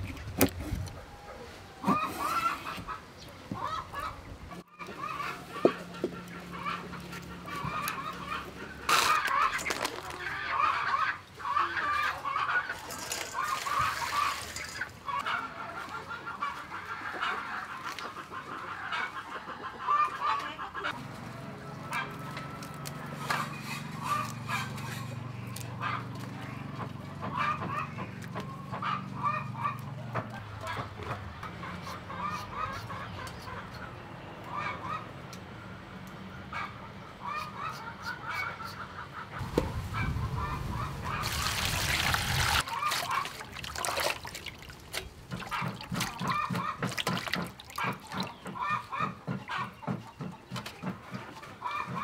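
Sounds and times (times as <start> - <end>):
poultry clucking: 0.1 - 43.5, 45.0 - 52.0.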